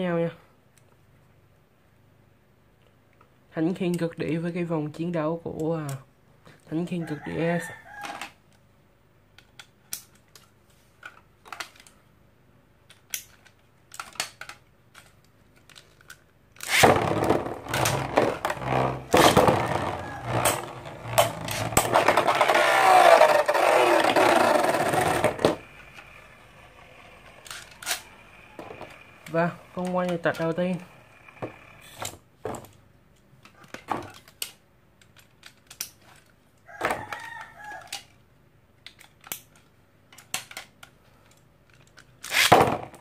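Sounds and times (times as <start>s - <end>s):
spinning tops whirring: 16.6s - 32.0s.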